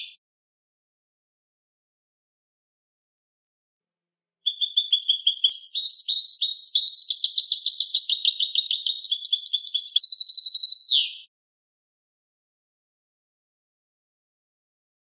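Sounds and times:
goldfinch twittering song: 0:04.5 - 0:11.3.

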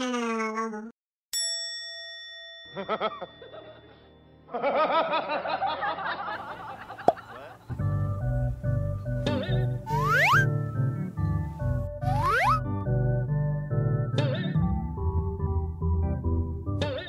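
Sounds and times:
bell ding: 0:01.4 - 0:04.4
warbling cartoon music: 0:09.3 - 0:10.6, 0:12.0 - 0:12.9
held tone: 0:09.9 - 0:10.5.

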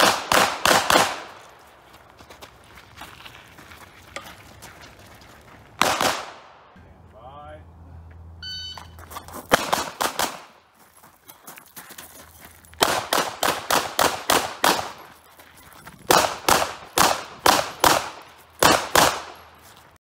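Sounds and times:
pistol shots in rapid strings: 0:09.5 - 0:10.5.

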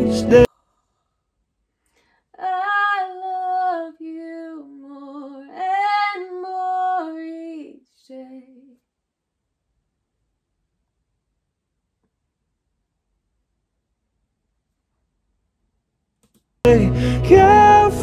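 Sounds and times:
woman singing unaccompanied: 0:02.4 - 0:08.8.

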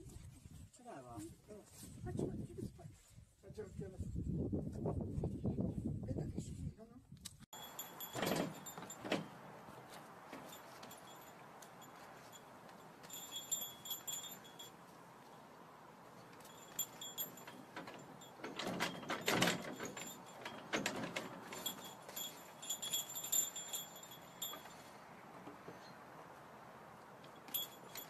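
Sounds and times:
small bell jingling: 0:07.6 - 0:15.1, 0:16.2 - 0:25.0, 0:27.3 - 0:28.0.

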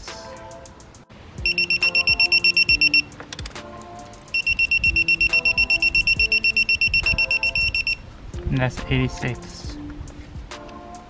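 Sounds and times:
torque wrench beeping rapidly: 0:01.4 - 0:03.1, 0:04.3 - 0:08.0.

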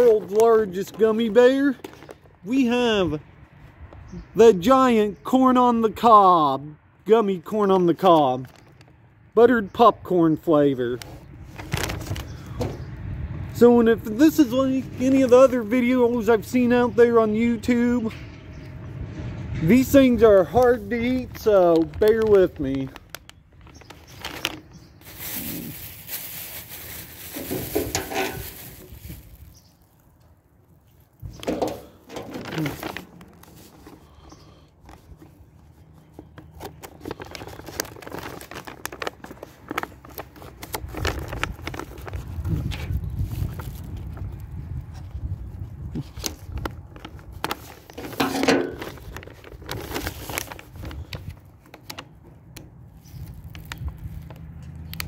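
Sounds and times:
plastic wrapper crinkling: 0:00.0 - 0:02.4, 0:08.4 - 0:09.0, 0:11.0 - 0:12.6, 0:20.5 - 0:55.0
wind rumble on microphone: 0:27.5 - 0:29.7, 0:40.6 - 0:47.6, 0:53.0 - 0:55.0.

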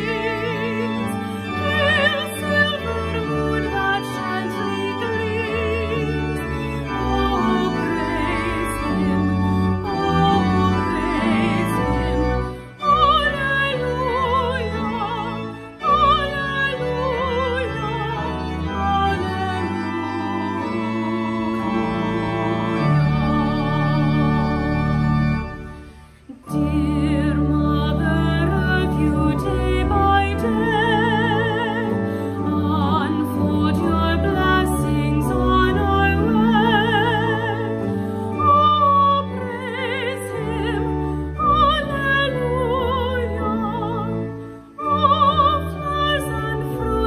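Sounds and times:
organ playing: 0:00.0 - 0:47.0.

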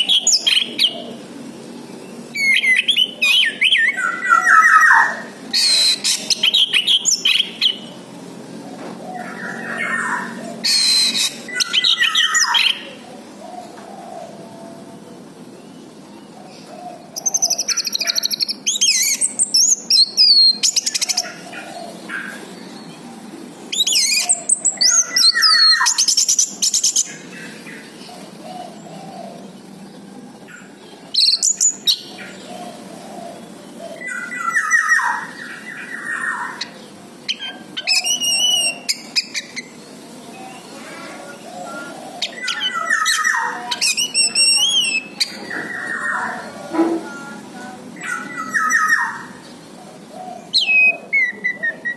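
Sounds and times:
thrush singing: 0:00.0 - 0:51.9.

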